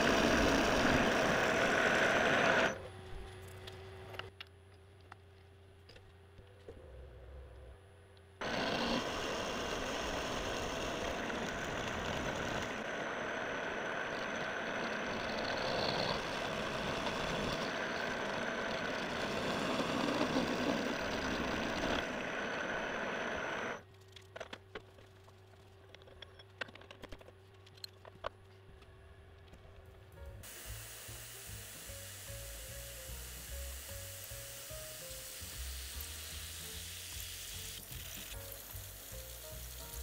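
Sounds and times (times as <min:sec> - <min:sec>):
milling machine cutting metal: 0:00.0 - 0:02.8, 0:08.4 - 0:23.8, 0:30.4 - 0:40.0
low machine hum: 0:00.0 - 0:24.0.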